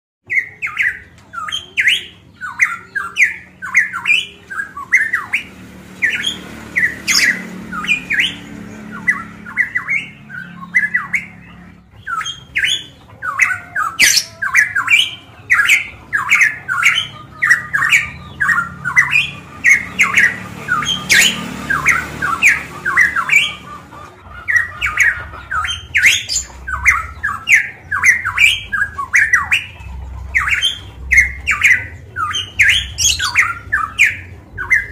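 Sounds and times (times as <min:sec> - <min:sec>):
bird singing whistled notes: 0:00.3 - 0:23.6, 0:30.4 - 0:34.9.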